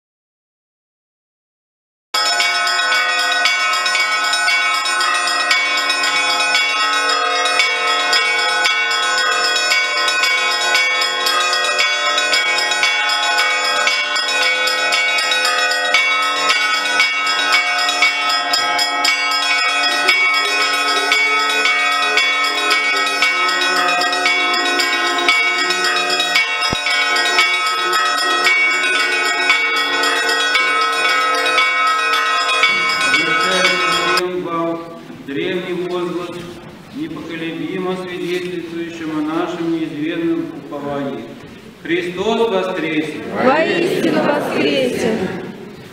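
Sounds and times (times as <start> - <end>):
church bells ringing peal: 2.2 - 36.4.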